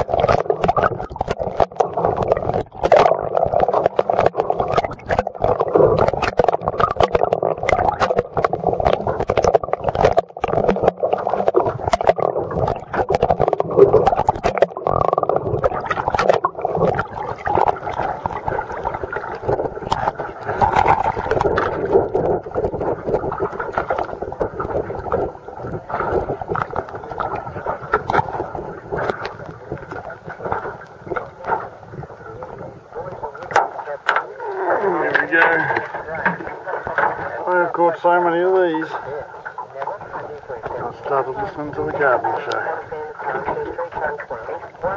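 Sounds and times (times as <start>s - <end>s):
muffled underwater water rush: 0.0s - 44.9s.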